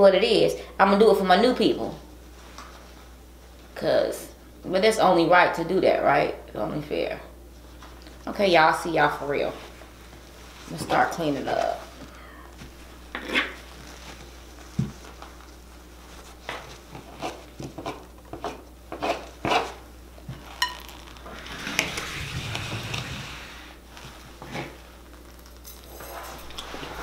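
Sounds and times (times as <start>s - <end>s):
rustling: 9.5s - 17.6s, 20.3s - 27.0s
dishes and utensils clinking: 20.6s - 20.9s.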